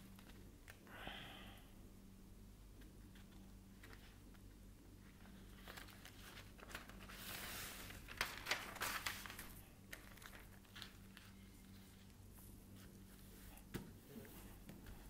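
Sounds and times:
plastic film crinkling: 5.2s - 12.2s.

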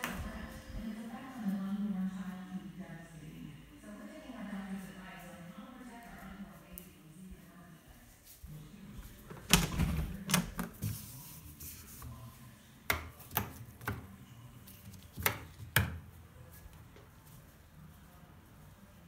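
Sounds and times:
door clunk and rattle: 9.3s - 10.6s.

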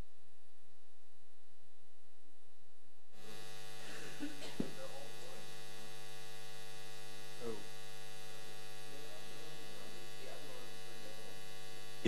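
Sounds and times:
electrical mains hum: 0.0s - 12.0s
faint voice: 3.2s - 5.5s, 7.4s - 7.6s, 8.9s - 11.5s.

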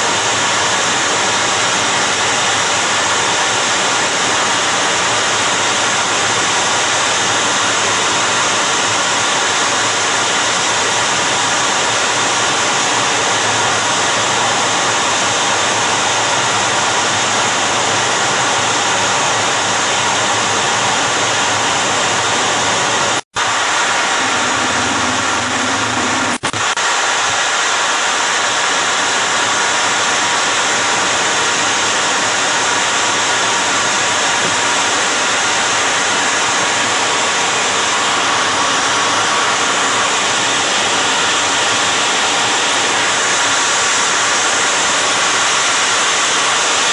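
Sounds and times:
jet engines running: 0.0s - 46.9s
low hum: 23.4s - 27.6s.

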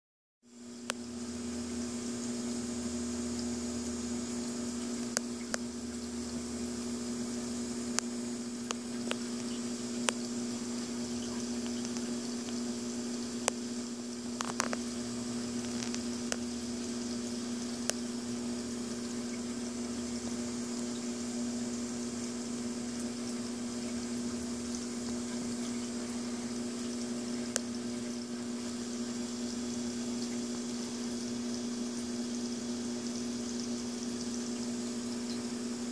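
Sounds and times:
aquarium pumps humming: 0.5s - 35.9s.

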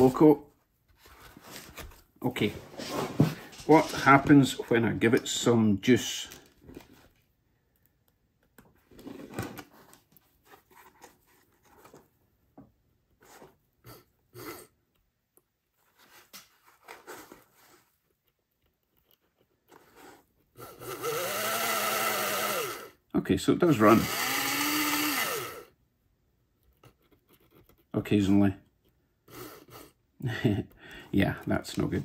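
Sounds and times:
electric motor whine: 20.7s - 22.9s, 23.8s - 25.7s.

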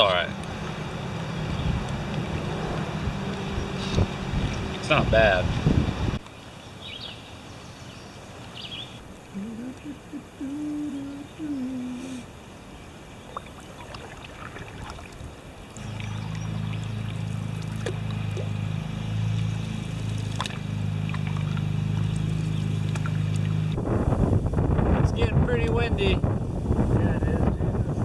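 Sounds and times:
low droning hum: 0.0s - 6.2s, 8.9s - 12.3s, 13.3s - 25.5s
water sloshing and dripping: 13.1s - 23.8s.

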